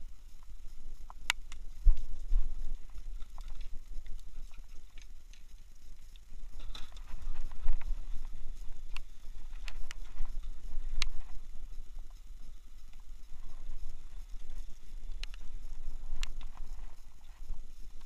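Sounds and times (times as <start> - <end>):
wind rumbling on microphone: 0.0 - 18.0
light clicks and taps: 8.9 - 11.3, 14.3 - 15.5.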